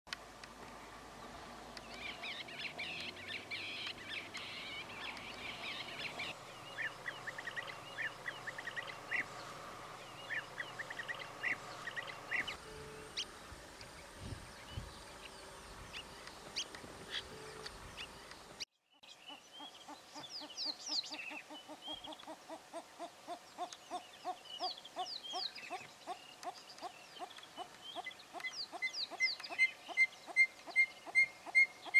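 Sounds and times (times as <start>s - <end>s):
birds chirping and trilling: 0.7s - 31.9s
repeated bird calls: 0.8s - 31.9s.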